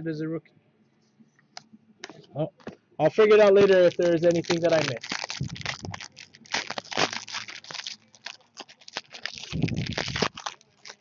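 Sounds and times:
foil wrapper crinkling: 3.3s - 11.0s.

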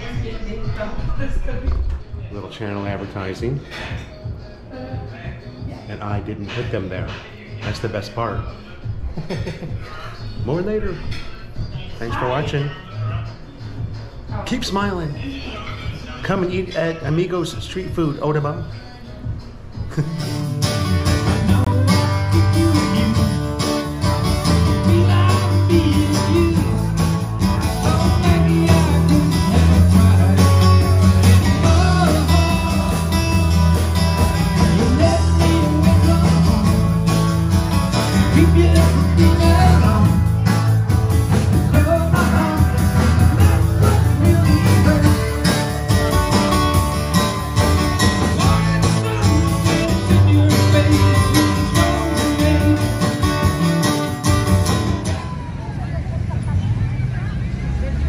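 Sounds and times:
prominent bass notes: 19.8s - 55.4s
live blues-rock band playing: 20.2s - 55.5s
person singing: 21.2s - 54.1s.

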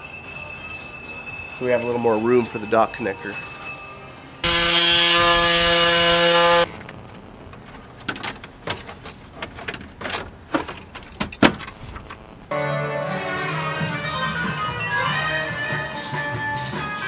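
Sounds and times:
loud steady whir: 4.4s - 6.7s.

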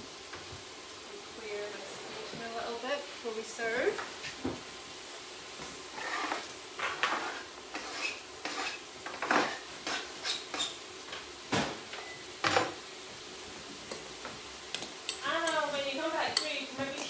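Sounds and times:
kitchen utensils and pans clattering: 6.0s - 10.8s, 11.6s - 12.8s.

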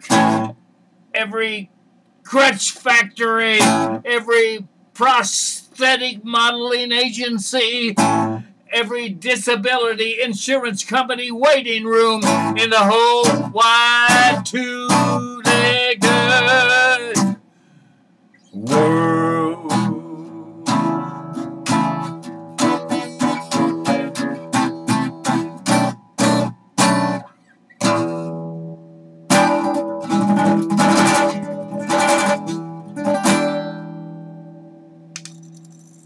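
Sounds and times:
acoustic guitar strumming: 0.0s - 0.6s, 2.4s - 5.2s, 7.6s - 9.0s, 11.5s - 35.8s
person singing a held note: 22.7s - 24.4s.

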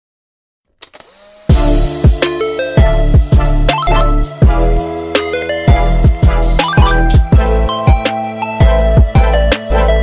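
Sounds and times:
electronic music: 2.4s - 9.5s.

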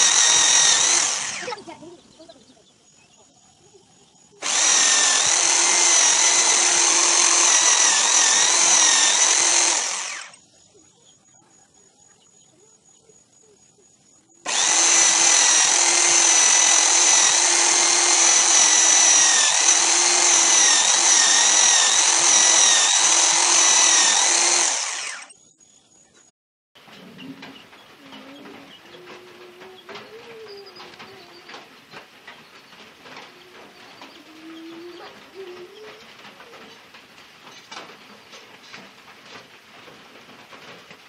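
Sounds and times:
electric drill whining: 0.0s - 1.6s, 4.4s - 10.4s, 14.4s - 25.3s.

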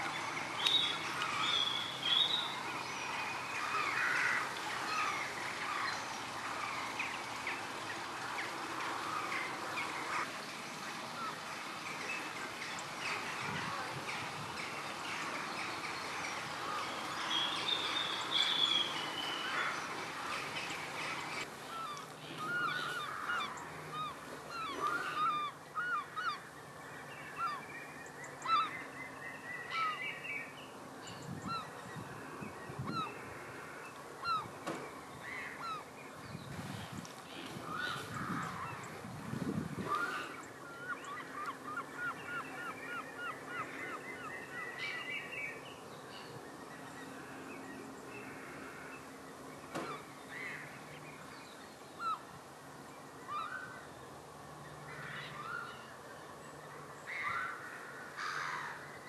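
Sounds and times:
birds honking: 0.0s - 26.5s.

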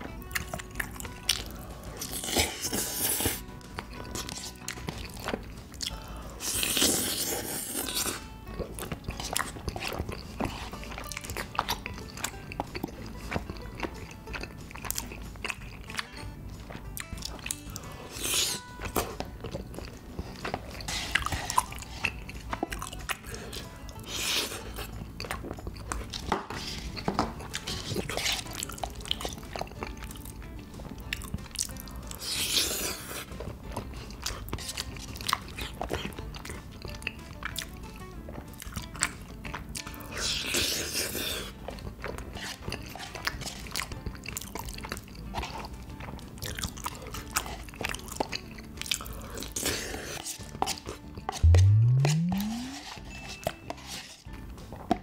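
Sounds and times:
wet chewing: 0.0s - 55.0s
slurping: 0.1s - 16.3s, 16.9s - 30.2s, 31.1s - 45.8s, 46.4s - 54.3s
mouth clicks: 51.4s - 53.2s.

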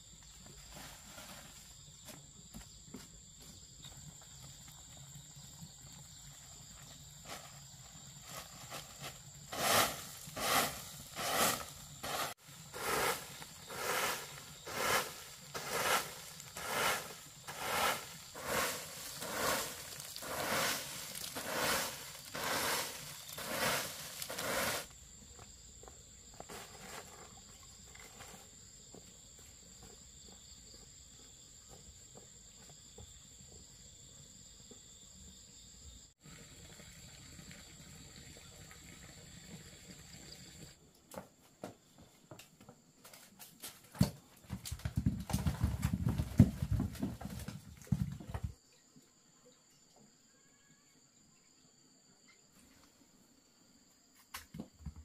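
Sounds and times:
broom sweeping dry leaves: 0.6s - 1.8s, 7.2s - 24.9s.

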